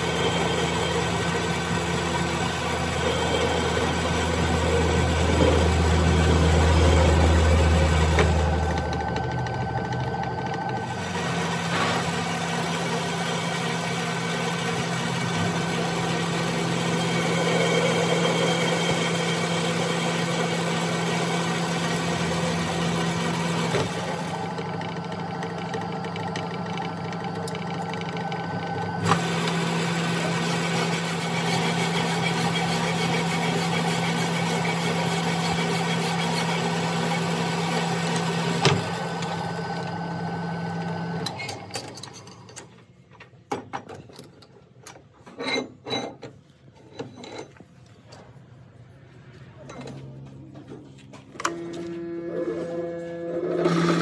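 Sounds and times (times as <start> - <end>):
lathe humming: 0.0 - 41.4
lathe winding down: 0.0 - 41.7, 51.4 - 54.0.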